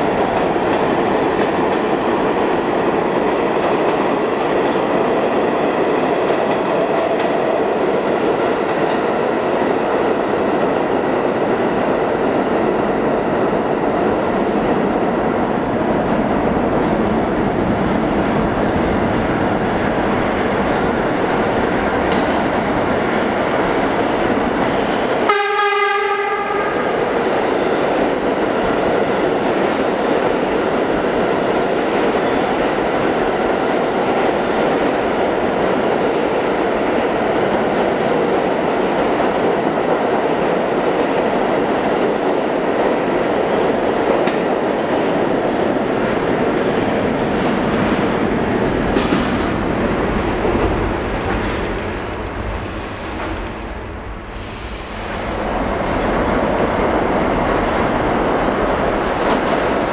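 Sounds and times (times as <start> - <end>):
subway train rail noise: 0.0 - 59.9
train horn: 25.2 - 27.1.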